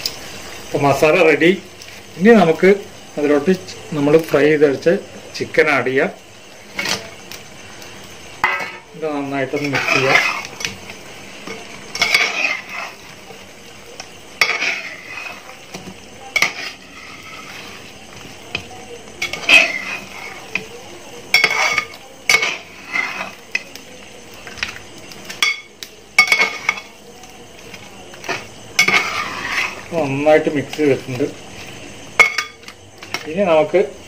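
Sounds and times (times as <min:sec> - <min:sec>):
food sizzling: 0:00.0 - 0:34.0
spatula scraping metal pot: 0:08.3 - 0:23.8, 0:24.4 - 0:33.2.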